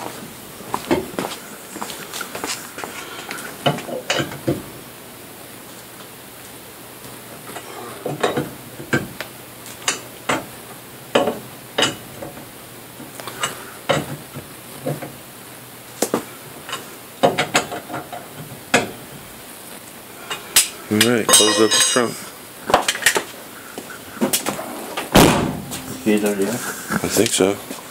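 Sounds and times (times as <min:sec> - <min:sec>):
metal tools clanking: 0:21.2 - 0:22.3.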